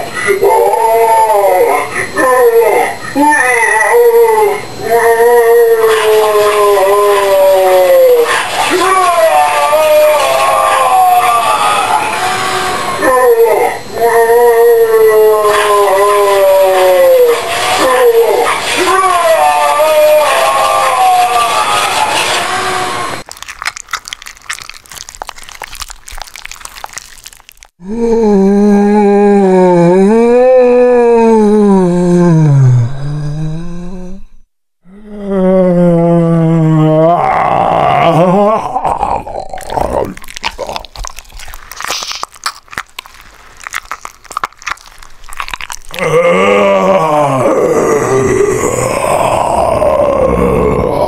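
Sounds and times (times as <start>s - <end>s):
wet crunching and chewing: 23.2s - 27.8s, 38.8s - 49.4s
low steady groan: 27.8s - 41.2s, 45.3s - 51.0s.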